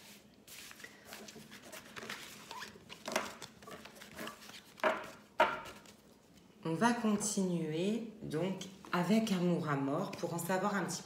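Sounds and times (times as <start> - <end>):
cards rustling and sliding: 0.0 - 6.4.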